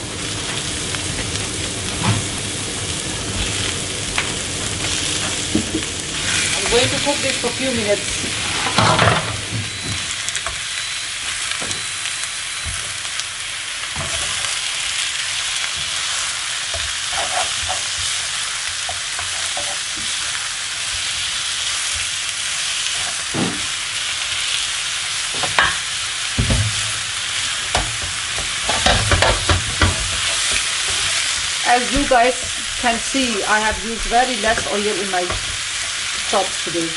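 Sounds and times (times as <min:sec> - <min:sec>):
meat sizzling in pan: 0:00.0 - 0:36.9
spatula knocking and scraping pan: 0:04.8 - 0:07.4, 0:16.7 - 0:20.3, 0:25.3 - 0:27.0, 0:27.6 - 0:36.3.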